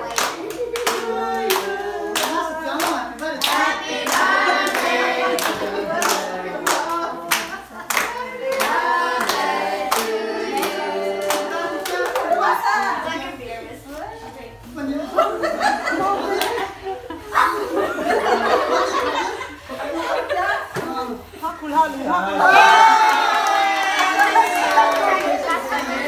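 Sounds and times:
group of people singing: 0:00.0 - 0:13.4.

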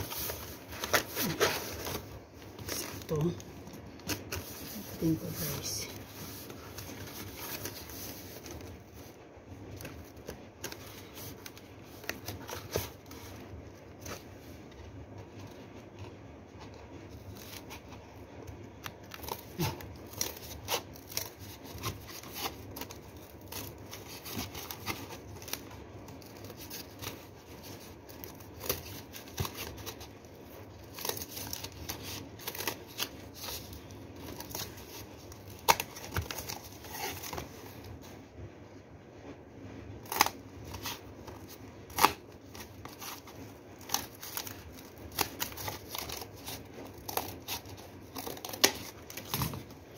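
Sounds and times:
scissors cutting cardboard: 0:00.0 - 0:02.9, 0:18.9 - 0:30.1, 0:40.0 - 0:49.7
cardboard rustling: 0:00.0 - 0:38.2, 0:40.0 - 0:49.9.

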